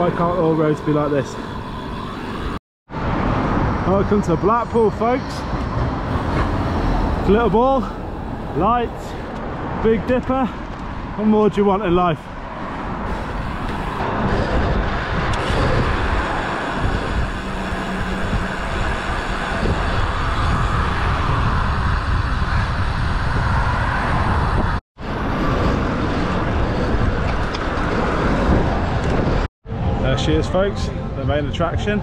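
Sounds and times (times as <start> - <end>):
passing traffic: 0.0 - 32.0
wind over microphone: 12.2 - 32.0.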